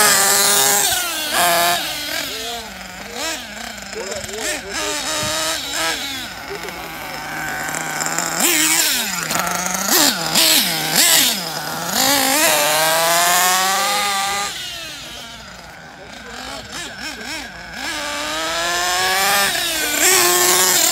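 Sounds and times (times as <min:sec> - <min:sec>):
small two-stroke engine revving: 0:00.0 - 0:20.9.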